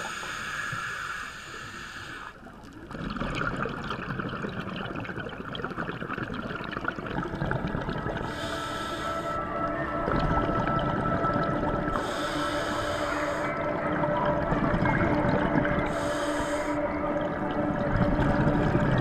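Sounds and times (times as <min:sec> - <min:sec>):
underwater watery rushing: 0:02.8 - 0:19.0
ambient music tones: 0:07.0 - 0:19.0.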